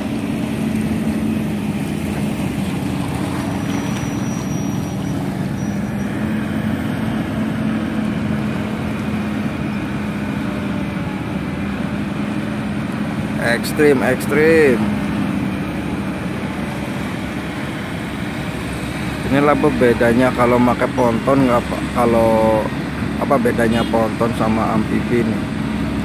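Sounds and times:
small boat engine droning: 0.0s - 26.0s.

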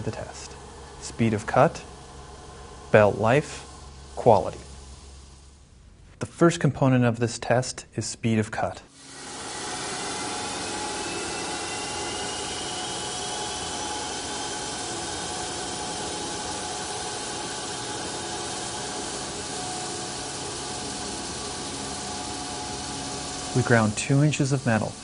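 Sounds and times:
belt grinding metal hiss: 0.0s - 5.6s, 8.9s - 25.0s
high whining of belt grinder: 8.9s - 25.0s.

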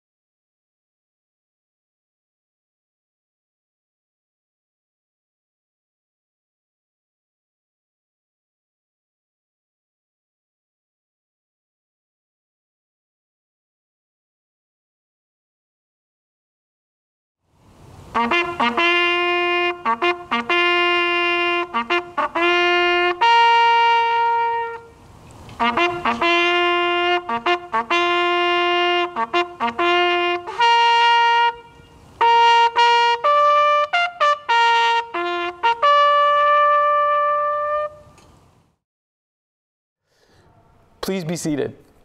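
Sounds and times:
solo trumpet playing bugle notes: 17.9s - 38.3s.

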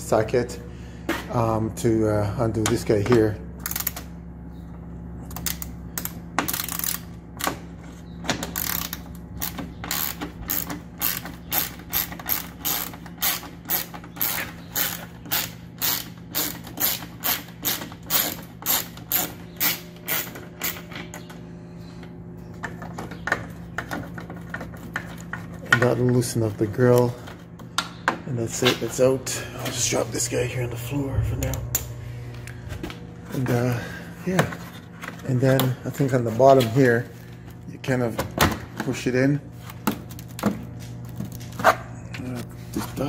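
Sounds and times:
hand ratchet clicking: 8.5s - 20.8s.

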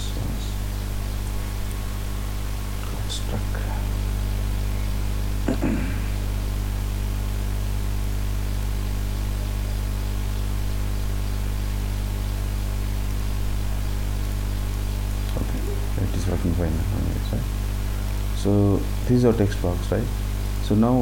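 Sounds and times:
electrical hum: 0.0s - 21.0s
microphone line hiss: 0.0s - 21.0s.

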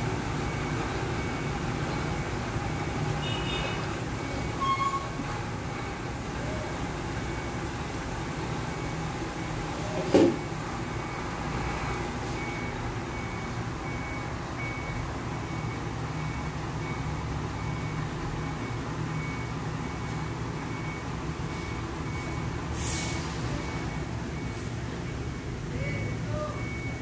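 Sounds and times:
low engine rumble: 0.0s - 27.0s
reversing alarm beeping: 0.0s - 27.0s
brief hiss: 22.8s - 23.5s.

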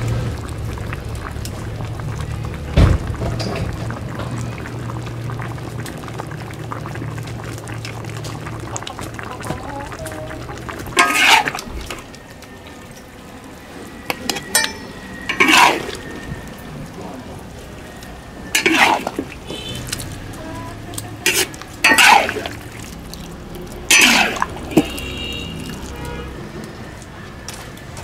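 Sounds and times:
metal ladle scraping a wok: 10.9s - 12.1s, 14.1s - 16.3s, 18.5s - 20.1s, 21.2s - 22.9s, 23.9s - 25.4s.

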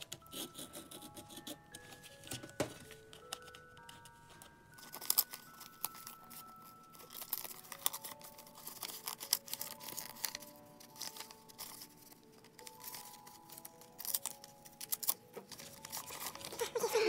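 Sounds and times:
paper envelope tearing: 4.8s - 17.0s.

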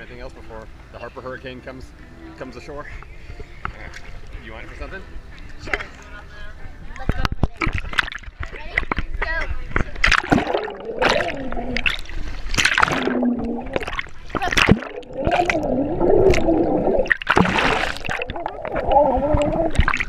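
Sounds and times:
muffled voices through water: 0.0s - 17.1s, 18.1s - 20.0s
underwater splashing and bubbling: 9.8s - 20.0s.

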